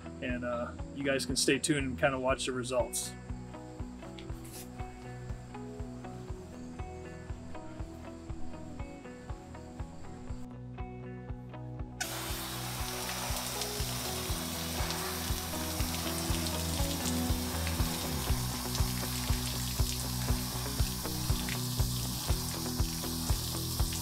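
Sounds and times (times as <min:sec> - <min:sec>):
background music with beat: 0:02.8 - 0:24.0
water spraying hiss: 0:12.0 - 0:24.0.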